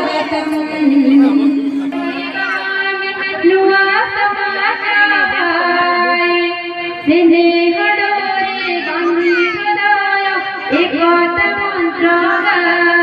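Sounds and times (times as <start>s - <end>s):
instrumental backing music: 0.0s - 3.9s
woman singing into a microphone: 0.0s - 13.0s.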